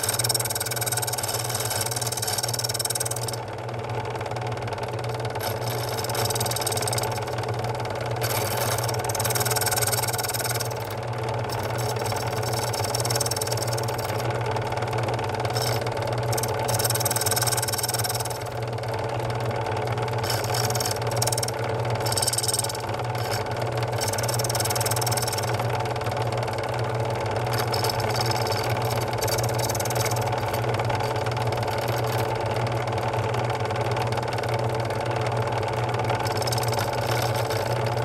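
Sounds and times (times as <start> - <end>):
cutter cutting metal: 0.0 - 3.4, 5.3 - 7.4, 8.2 - 14.2, 15.4 - 18.6, 20.2 - 25.6, 27.5 - 32.3, 36.2 - 37.8
key-cutting machine humming: 0.0 - 34.5, 35.7 - 38.0.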